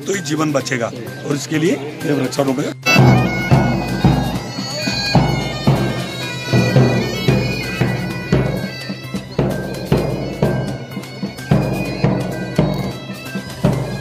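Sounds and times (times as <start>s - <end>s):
bagpipes playing over drone: 2.8s - 14.0s
bass drum striking: 2.8s - 14.0s.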